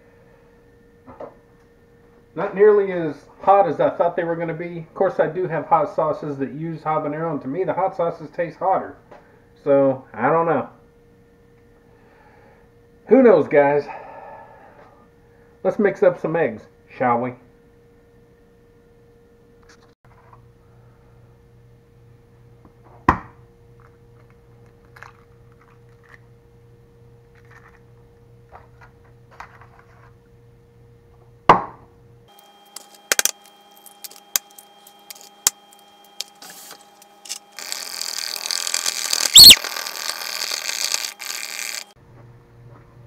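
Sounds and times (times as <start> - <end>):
eggs cracking: 32.7 - 36.4, 37.3 - 41.9.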